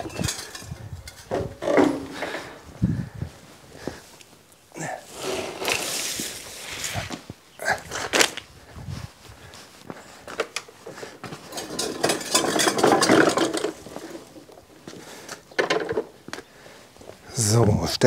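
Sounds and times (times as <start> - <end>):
reel mower rattling on cobblestones: 11.5 - 14.4.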